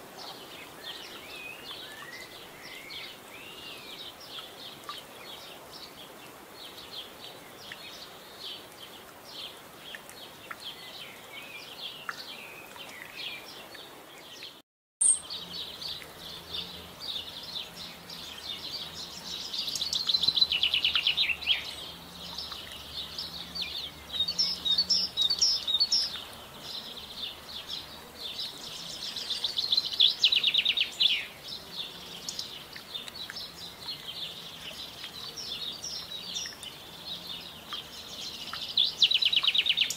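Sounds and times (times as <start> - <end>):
songbirds chirping: 0.0 - 39.9.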